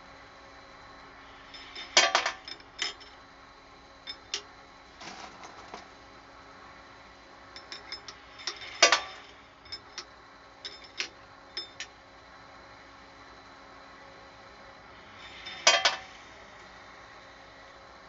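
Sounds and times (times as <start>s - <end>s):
faint steady hum: 0.0s - 18.0s
brass cases clinking and clattering: 1.6s - 3.2s, 4.1s - 4.4s, 7.6s - 10.1s, 10.7s - 11.9s.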